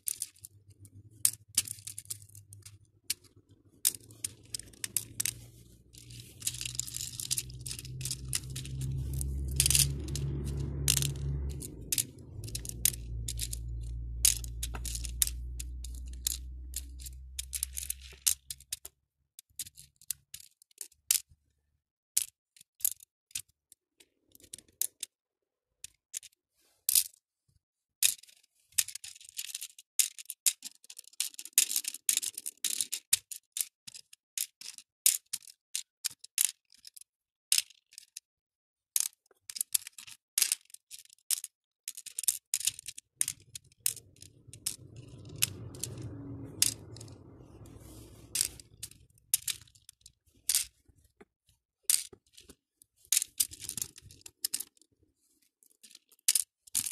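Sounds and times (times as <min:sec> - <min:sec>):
plastic beads clicking and rattling: 0:00.0 - 0:21.3, 0:28.0 - 0:38.2, 0:39.0 - 0:51.0, 0:51.9 - 0:54.9, 0:55.6 - 0:56.9
steady low rumble: 0:03.3 - 0:18.6, 0:43.2 - 0:50.0.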